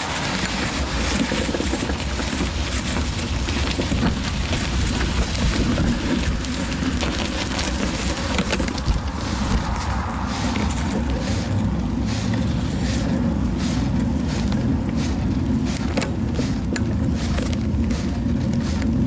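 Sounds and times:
wind and rolling rumble: 0.0s - 19.0s.

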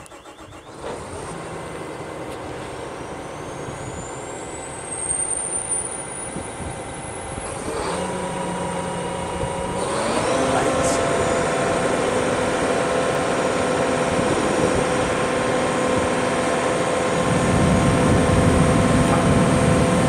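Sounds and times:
diesel engine running: 0.0s - 20.0s
high whine rising in pitch: 0.0s - 20.0s.

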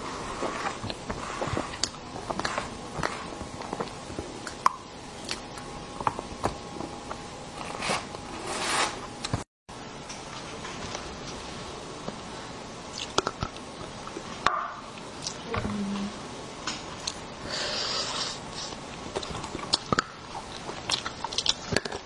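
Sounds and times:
scraping or rustling: 0.0s - 3.9s, 7.6s - 9.0s
mouth eating sounds: 12.9s - 14.2s, 17.9s - 22.0s.

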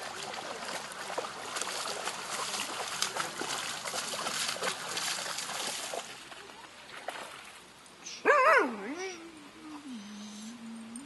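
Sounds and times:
dog splashing through water: 0.0s - 7.5s.

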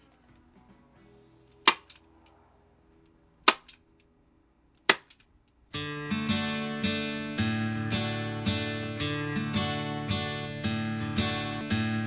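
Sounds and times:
staple gun snaps: 1.7s - 2.0s, 3.5s - 3.8s.

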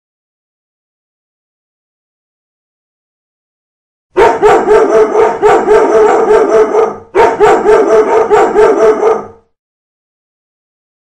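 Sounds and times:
recorded dogs barking rapidly: 4.2s - 9.5s.

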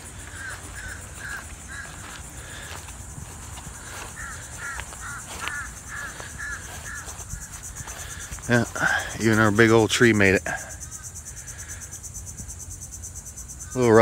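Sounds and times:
bird chirping: 0.0s - 2.9s, 3.5s - 9.6s
insects buzzing: 0.0s - 14.0s.

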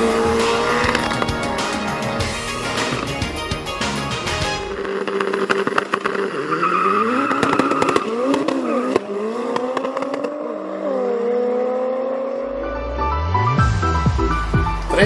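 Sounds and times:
drag racing cars accelerating: 0.0s - 1.9s, 4.7s - 14.5s
sharp engine pops: 4.8s - 6.3s.

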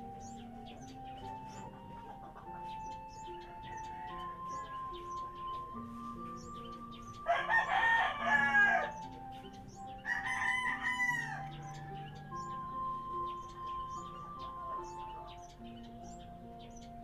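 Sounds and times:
soft background music: 0.0s - 17.0s
rooster crowing: 3.6s - 5.4s, 7.2s - 9.2s, 10.0s - 13.2s.

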